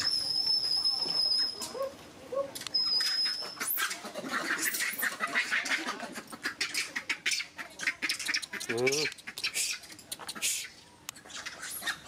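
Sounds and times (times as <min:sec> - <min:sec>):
high-pitched animal squeaking: 0:00.0 - 0:05.7.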